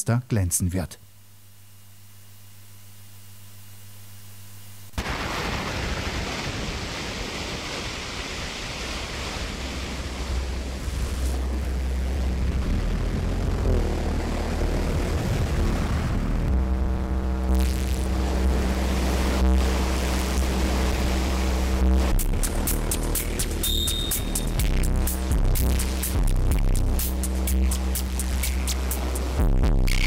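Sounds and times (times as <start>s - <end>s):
dense electronic noise wash: 3.9s - 30.0s
deep bass drone: 10.0s - 30.0s
pitched electronic tones: 22.0s - 26.1s.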